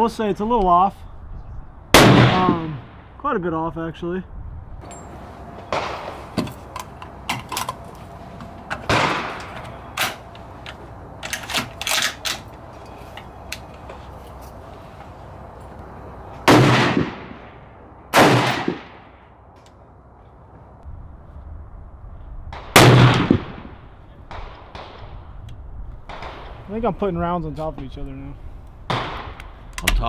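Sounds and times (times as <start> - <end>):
rifle shots echoing: 2.0 - 3.2, 5.7 - 6.4, 8.9 - 10.3, 16.4 - 19.3, 22.5 - 25.1, 26.1 - 26.7, 28.9 - 29.6.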